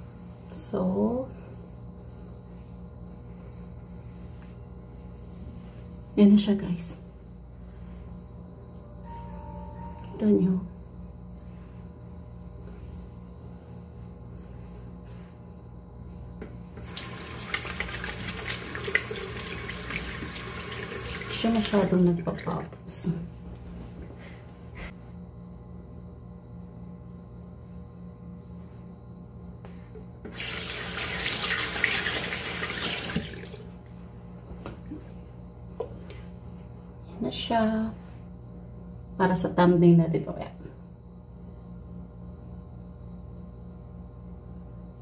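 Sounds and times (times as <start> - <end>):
low steady hum: 0.0 - 45.0
tap water running and splashing: 16.8 - 22.7, 30.3 - 33.7.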